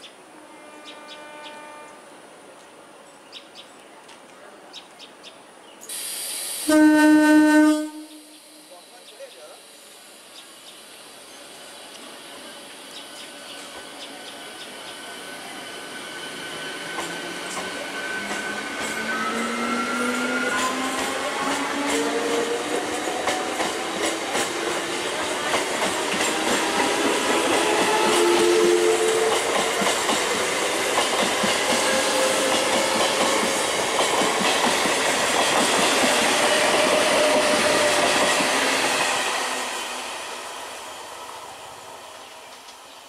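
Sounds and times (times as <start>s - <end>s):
train electric motors whining: 9.9s - 43.0s
wheels clattering on rails: 16.7s - 39.1s.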